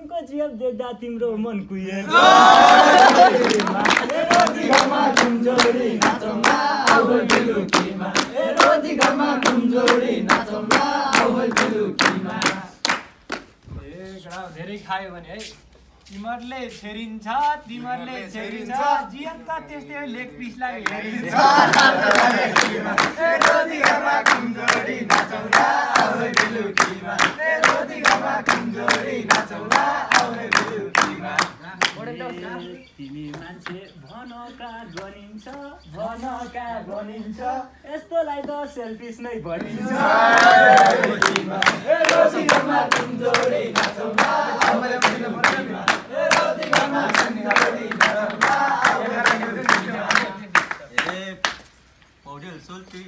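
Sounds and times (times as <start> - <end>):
men singing folk song: 2.1 - 12.9, 20.0 - 51.2
hands clapping: 2.1 - 13.6, 20.1 - 33.8, 34.9 - 35.6, 39.6 - 51.8.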